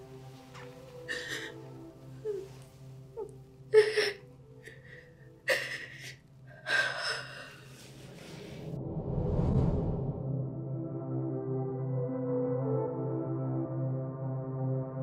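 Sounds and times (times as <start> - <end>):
woman sobbing: 1.0 - 7.7.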